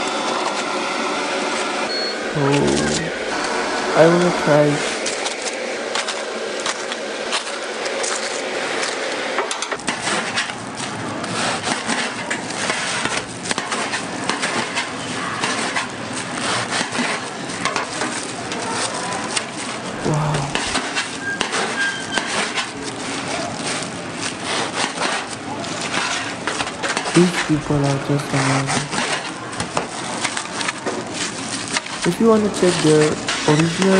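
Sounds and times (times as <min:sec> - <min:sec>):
knife crunching fried crust: 0:11.2 - 0:27.5.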